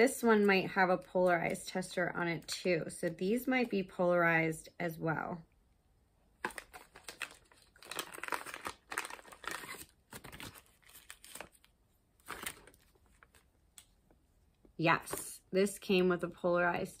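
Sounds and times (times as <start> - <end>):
packaging rustling: 6.4 - 13.5.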